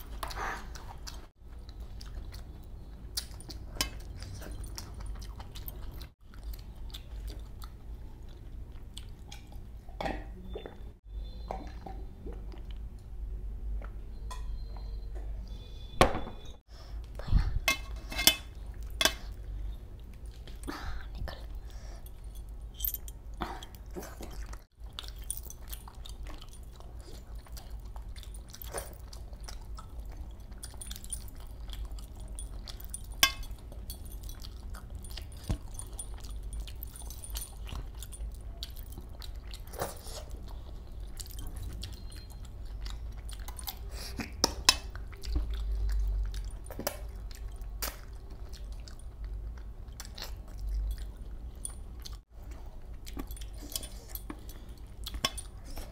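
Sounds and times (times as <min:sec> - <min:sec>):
man chewing food: 0:00.0 - 0:15.8, 0:16.6 - 0:55.9.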